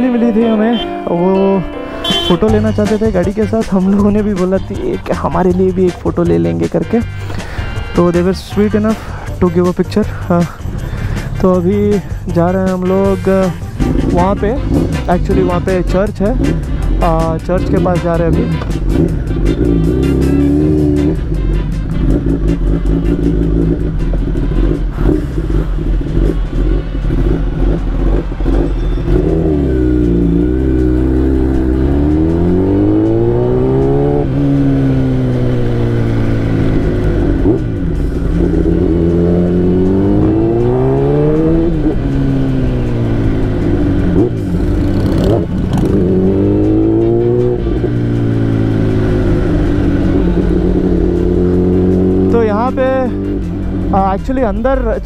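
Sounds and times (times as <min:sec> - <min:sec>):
motorcycle engine revving: 0:11.0 - 0:55.0.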